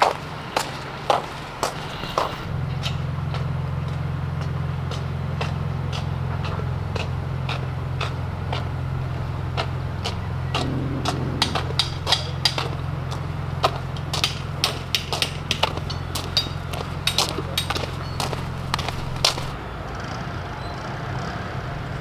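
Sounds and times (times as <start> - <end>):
low mechanical hum: 2.0 - 14.6.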